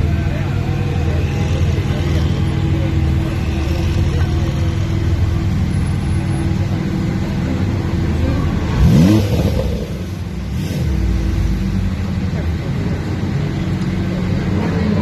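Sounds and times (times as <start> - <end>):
car engines idling: 0.0 - 15.0
engine revving: 8.2 - 11.9.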